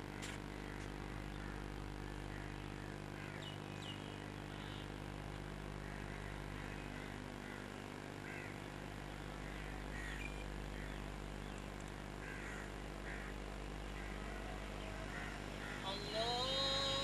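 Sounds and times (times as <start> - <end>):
steady low hum: 0.0 - 17.0
faint high calls: 12.3 - 17.0.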